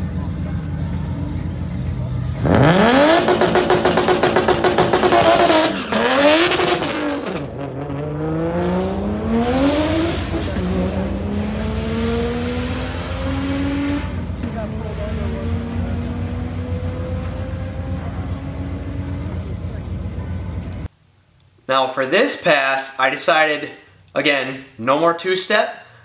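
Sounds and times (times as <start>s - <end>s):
car engine accelerating: 0.0s - 20.9s.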